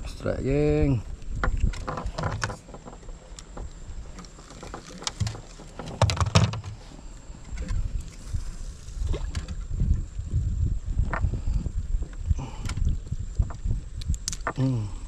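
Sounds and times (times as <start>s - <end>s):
knocks of gear in boat: 1.3s - 8.0s.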